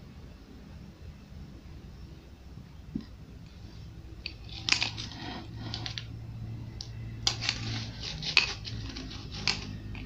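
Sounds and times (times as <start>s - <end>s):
metal spoon scraping ice in bowl: 4.3s - 6.1s, 7.2s - 10.0s.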